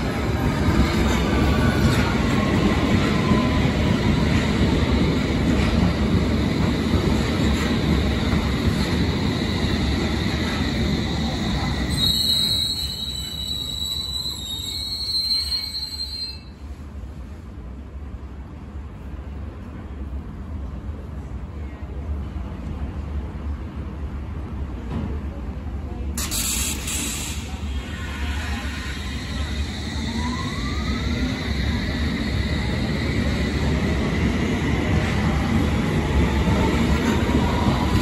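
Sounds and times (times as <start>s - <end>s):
train wheels rumbling on rails: 0.0s - 18.2s, 22.2s - 38.0s
high brake squeal: 11.9s - 16.6s, 26.2s - 31.6s.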